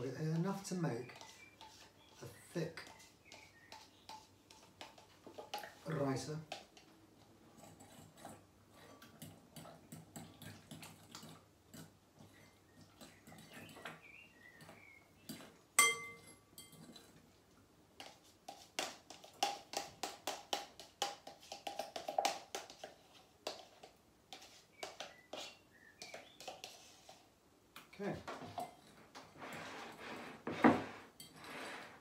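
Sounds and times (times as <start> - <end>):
spoon scraping yogurt tub: 0.3 - 15.6, 18.0 - 27.9, 28.5 - 32.0
spoon taps: 15.3 - 16.8
spoon clinking on glass: 15.8 - 17.1.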